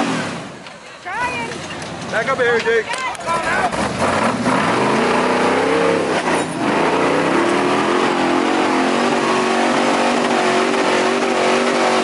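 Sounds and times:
off-road vehicle engine revving: 0.0s - 0.7s, 3.3s - 12.0s.

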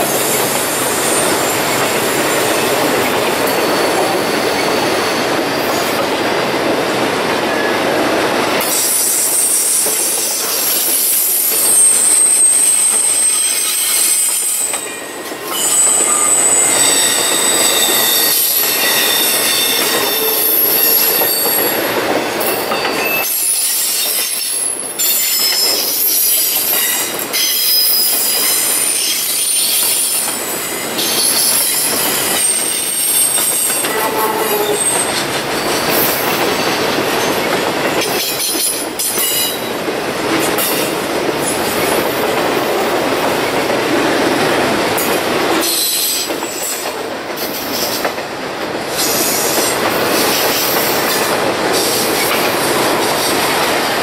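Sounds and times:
train wheels rumbling on rails: 0.0s - 54.0s
wheel flanges squealing: 11.0s - 21.9s.

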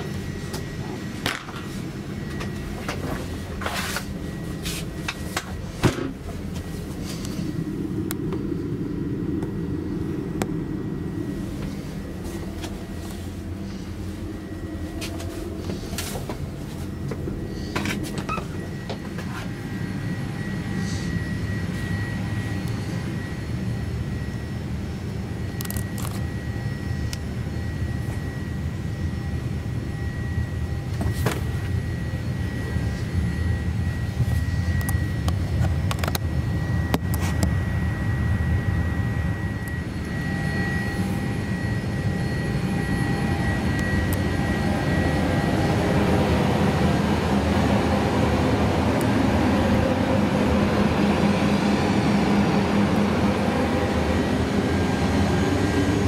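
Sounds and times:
aircraft cabin rumble and hum: 0.0s - 56.0s
faint steady whine: 0.0s - 56.0s.

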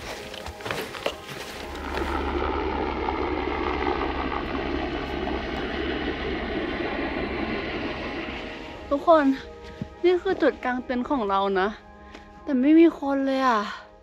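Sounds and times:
helicopter rotor and engine drone: 1.4s - 9.9s.

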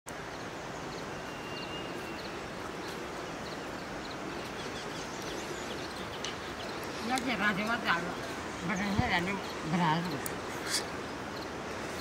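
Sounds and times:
rural background noise: 0.1s - 12.0s
faint bird chirps: 0.3s - 7.1s.

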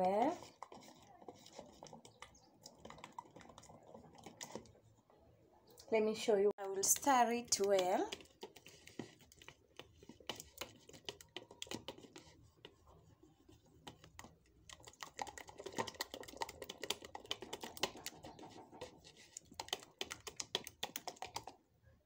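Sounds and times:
whisk clicking against plastic bowl: 13.8s - 21.6s.

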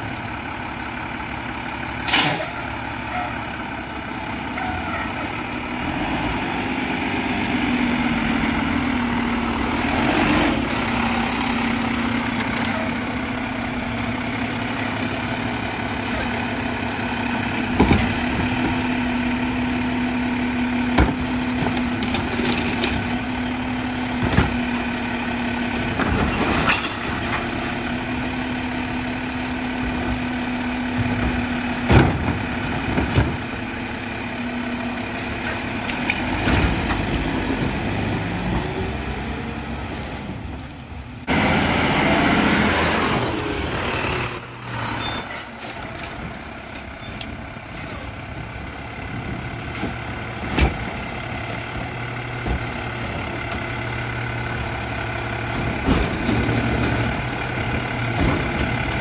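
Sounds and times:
garbage truck engine and hydraulics: 0.0s - 59.0s
air brakes hissing: 2.0s - 2.6s
high squeaks: 12.0s - 13.0s, 43.8s - 47.8s.

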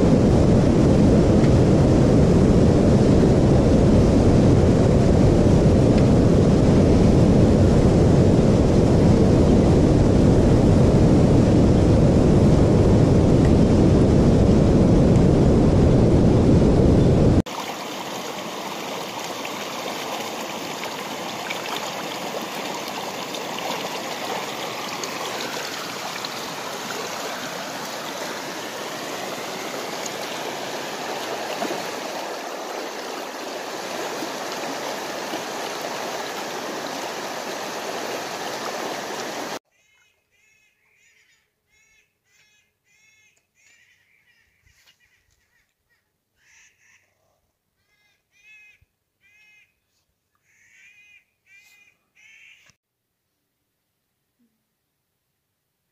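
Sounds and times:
creek rushing over rocks: 17.4s - 39.6s
bird calling in short notes: 39.7s - 47.1s, 47.8s - 49.8s, 50.4s - 52.8s.

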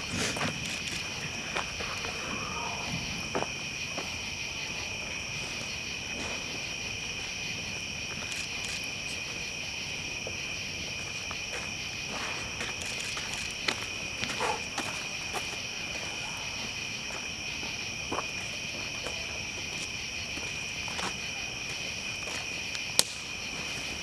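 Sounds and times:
crickets chirping: 0.0s - 24.0s
campfire crackling and popping: 22.6s - 24.0s.

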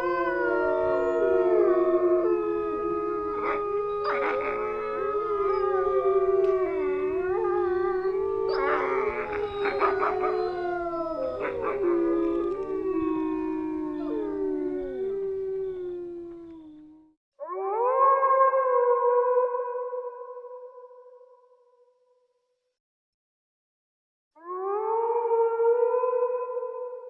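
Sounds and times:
dogs howling together: 0.0s - 16.9s.

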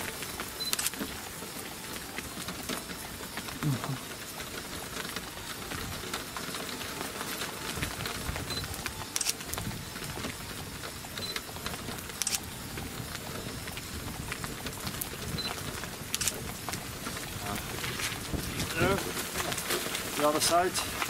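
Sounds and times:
wind and rain hiss: 0.0s - 21.0s
short high beeps: 0.6s - 0.9s
sharp clicks: 0.6s - 1.1s, 8.5s - 10.4s, 12.1s - 12.5s, 15.4s - 16.5s.

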